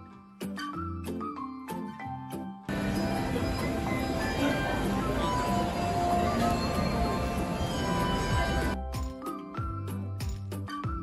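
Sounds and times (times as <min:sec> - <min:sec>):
busy railway station noise: 0:02.7 - 0:08.8
chiming intro jingle: 0:02.7 - 0:08.8.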